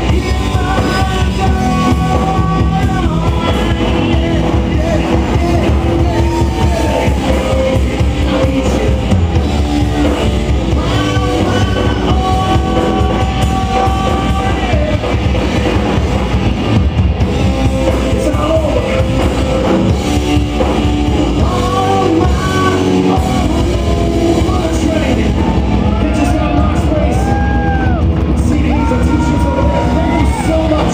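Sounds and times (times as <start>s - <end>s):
pounding drum kit: 0.0s - 30.9s
rock band playing loud: 0.0s - 30.9s.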